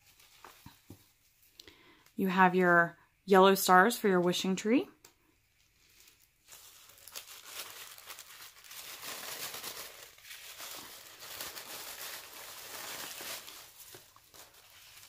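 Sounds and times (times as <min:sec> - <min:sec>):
paper shred and tissue rustling: 0:00.0 - 0:01.4, 0:05.5 - 0:15.0.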